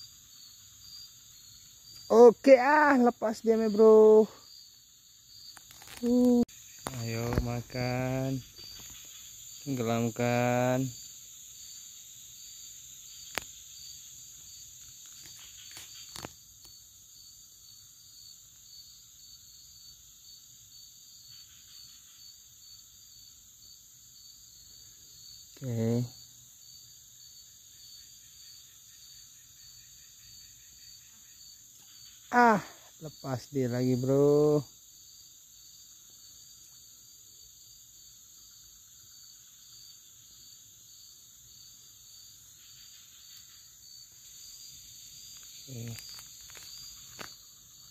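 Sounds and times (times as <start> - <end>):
insects chirping: 0.0 - 47.9
outdoor background noise: 0.0 - 47.9.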